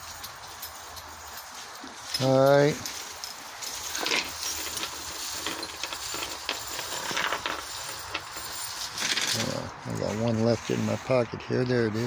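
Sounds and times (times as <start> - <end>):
metallic clinks: 0.0 - 9.7
hand rummaging in pocket: 1.4 - 10.2.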